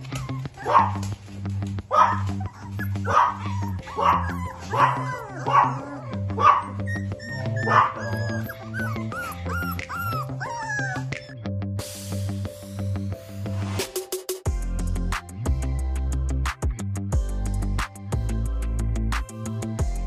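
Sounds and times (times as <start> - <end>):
puppies whining: 0.0 - 1.3, 1.9 - 11.6
puppies yelping and barking: 0.0 - 1.3, 1.9 - 11.4
background music with steady beat: 0.0 - 20.0.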